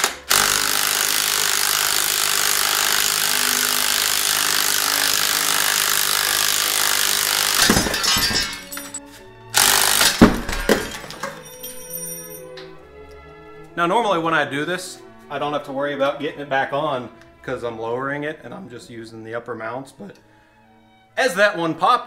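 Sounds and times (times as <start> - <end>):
impact wrench running: 0.0 - 9.0, 9.6 - 11.4
loud metal clattering: 7.4 - 9.0, 9.8 - 12.6.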